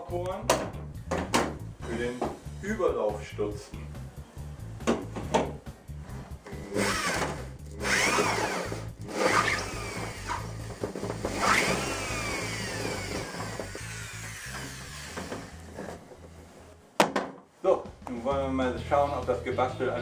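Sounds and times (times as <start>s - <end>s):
background music with a beat: 0.0s - 7.8s
electric drill whining: 6.5s - 16.0s.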